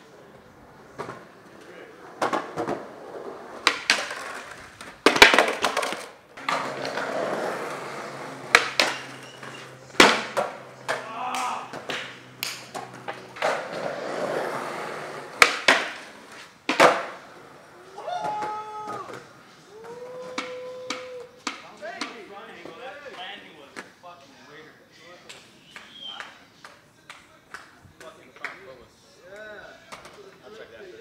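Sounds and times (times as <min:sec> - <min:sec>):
skateboard wheels rolling: 0:00.0 - 0:23.2
skateboard clacking on ground: 0:00.9 - 0:24.0, 0:25.2 - 0:28.8, 0:29.4 - 0:30.4.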